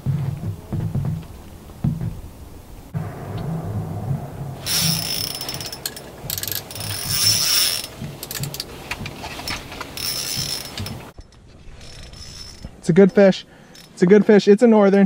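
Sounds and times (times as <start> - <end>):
fishing reel ratcheting clicks: 4.7 - 8.7, 10.0 - 11.0, 11.8 - 13.9.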